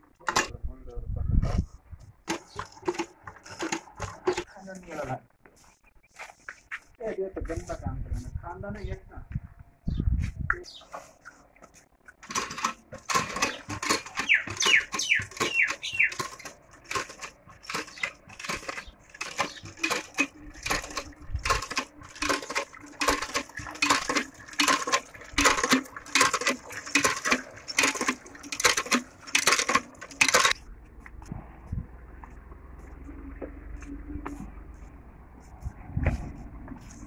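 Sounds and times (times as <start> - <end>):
hand water pump clanking: 0.1 - 0.6, 2.2 - 4.6, 12.1 - 30.6.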